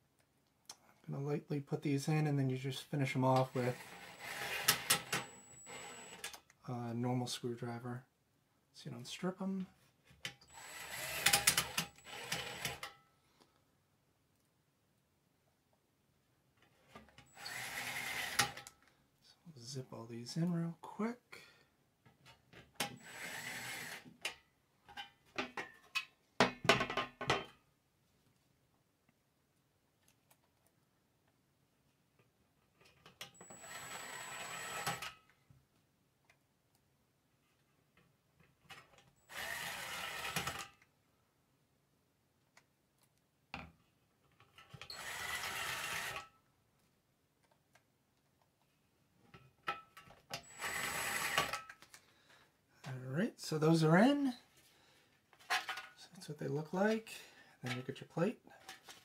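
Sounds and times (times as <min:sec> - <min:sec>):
cordless drill driving a screw: 0:03.7 - 0:06.4, 0:10.5 - 0:12.9, 0:17.3 - 0:18.7, 0:23.0 - 0:24.1, 0:33.4 - 0:35.2, 0:39.3 - 0:40.7, 0:44.9 - 0:46.3, 0:50.4 - 0:51.7.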